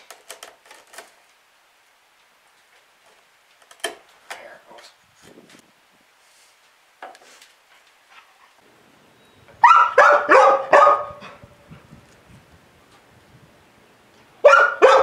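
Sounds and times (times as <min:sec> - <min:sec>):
dog barking: 0:09.6 - 0:11.4, 0:14.4 - 0:15.0.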